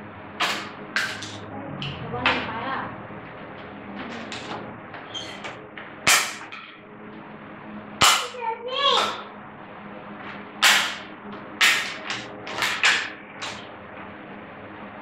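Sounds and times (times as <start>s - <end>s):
plastic toys clacking on a table: 0.4s - 1.4s, 11.6s - 13.6s.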